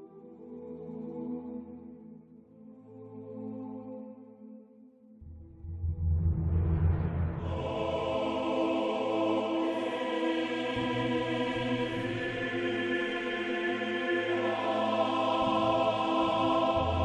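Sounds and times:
low drone: 5.2 - 9.3.

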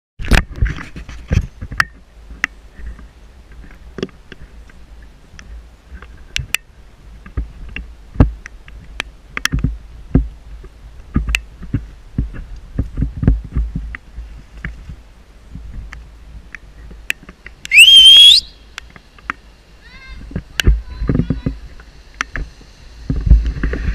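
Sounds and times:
wind rumble on microphone: 0.2 - 17.8, 18.4 - 23.9.

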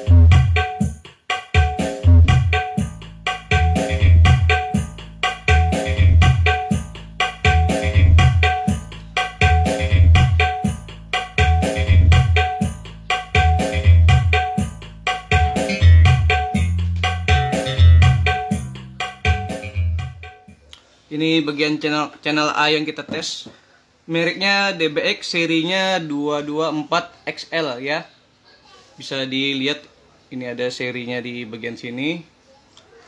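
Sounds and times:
song over loudspeakers: 0.0 - 20.5.

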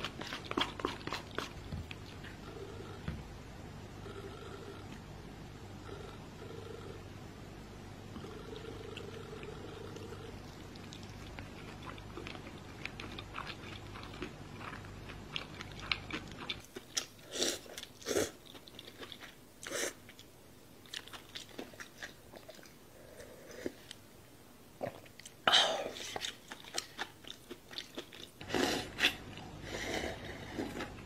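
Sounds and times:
close chewing and mouth clicks: 0.0 - 2.4, 10.4 - 22.8, 24.9 - 31.0.

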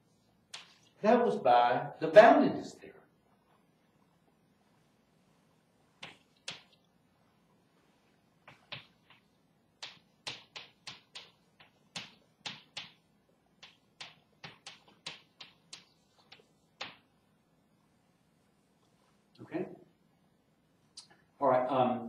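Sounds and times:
chalk tapping on a blackboard: 0.6 - 0.9, 6.0 - 6.8, 8.5 - 17.0.

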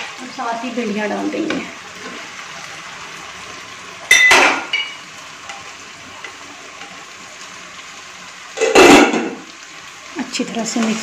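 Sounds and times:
low sizzle of frying: 0.0 - 11.0.

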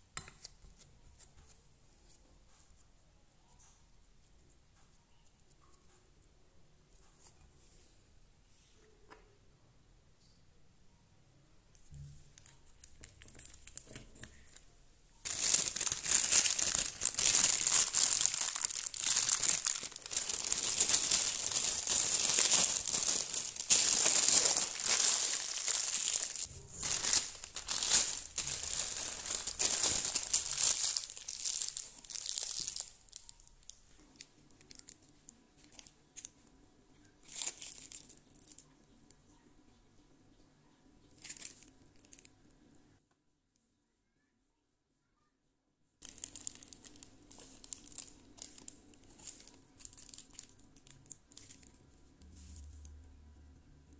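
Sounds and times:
plastic piping bag crinkling: 12.3 - 36.4, 37.2 - 38.7, 41.1 - 42.3, 46.0 - 52.7.

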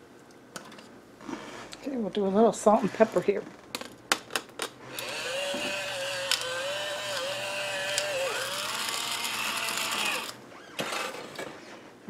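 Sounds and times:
electric grinder whirring: 4.8 - 10.4.

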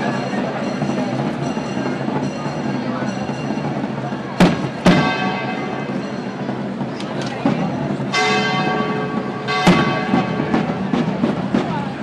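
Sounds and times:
church bells ringing: 0.0 - 11.6
crowd noise: 0.0 - 12.0
sharp drum beats: 3.3 - 12.0.

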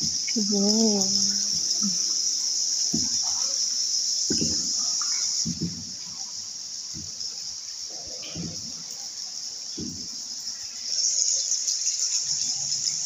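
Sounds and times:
high-pitched insect trill: 0.0 - 13.0
soft low thuds: 2.9 - 3.4, 4.2 - 4.8, 5.4 - 6.2, 6.8 - 7.3, 8.1 - 8.8, 9.7 - 10.3.

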